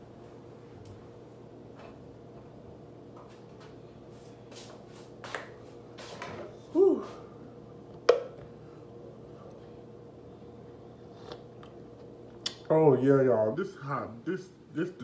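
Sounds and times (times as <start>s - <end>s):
person humming mm: 6.7s - 7.3s.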